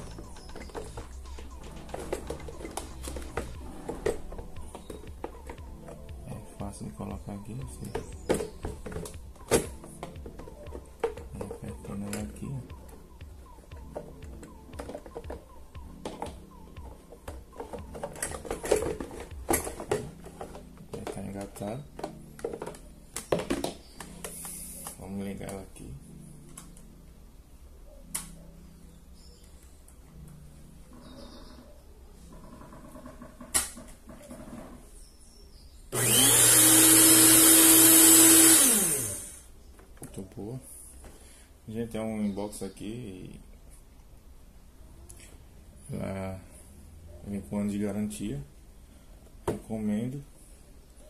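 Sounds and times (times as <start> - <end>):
plastic mixer parts knocking: 0.0 - 6.1, 6.7 - 13.0, 13.8 - 16.4, 17.0 - 24.2
stand mixer motor whining: 36.0 - 39.4.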